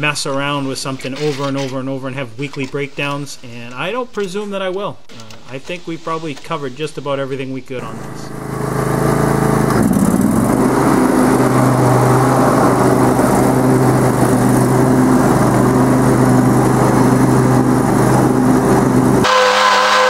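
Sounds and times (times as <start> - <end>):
lawn tractor engine running: 7.9 - 19.7.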